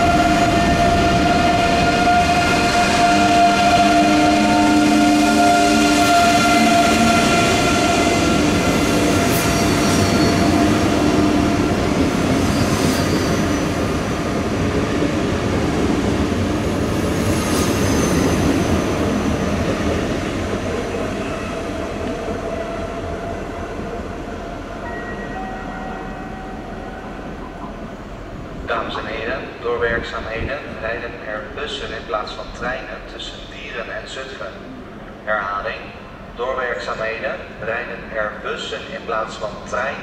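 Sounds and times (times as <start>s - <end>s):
train wheels rolling: 0.0s - 28.6s.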